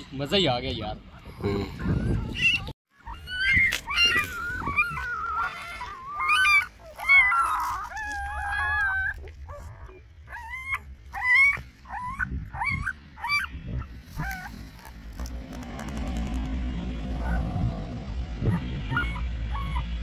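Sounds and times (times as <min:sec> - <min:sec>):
puppies yelping and whining: 0:00.0 - 0:16.4, 0:17.1 - 0:20.0.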